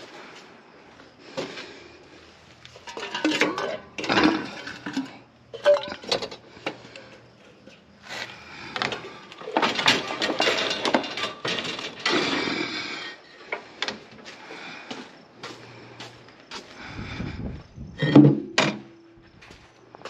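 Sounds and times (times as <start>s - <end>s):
metal tools and wire clanking: 2.7s - 7.8s, 8.7s - 13.6s, 18.0s - 18.8s.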